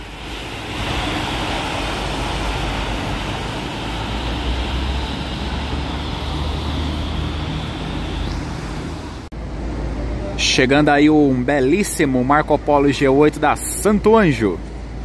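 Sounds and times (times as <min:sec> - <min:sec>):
tyres hissing through water: 0:00.0 - 0:09.3
bus engine rumble: 0:00.0 - 0:15.0.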